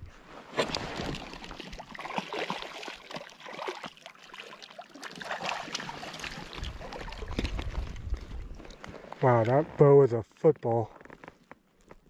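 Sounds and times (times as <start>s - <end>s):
water splashing and sloshing: 0.0s - 9.9s.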